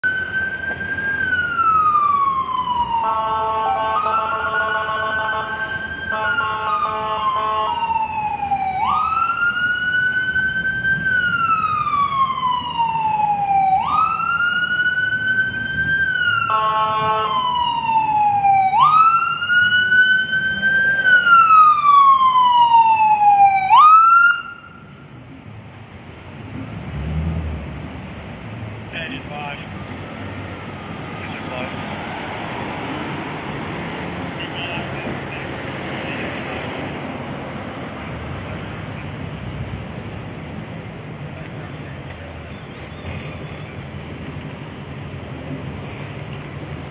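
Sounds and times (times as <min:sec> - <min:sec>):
ambulance siren wailing: 0:00.0 - 0:25.1, 0:29.1 - 0:33.7.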